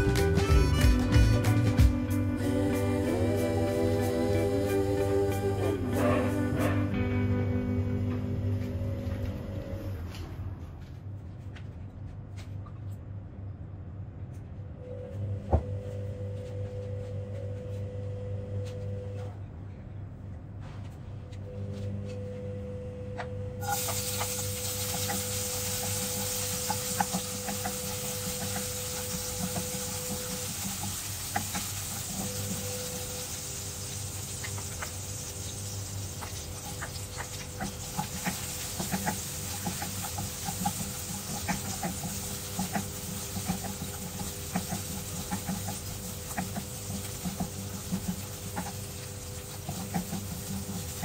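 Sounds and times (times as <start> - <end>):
oil sizzling in a wok: 23.6 - 51.0.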